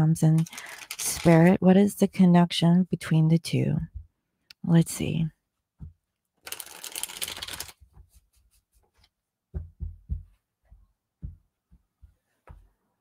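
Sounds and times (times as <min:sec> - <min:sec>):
cards riffle-shuffled: 0:00.4 - 0:01.5, 0:06.4 - 0:07.8.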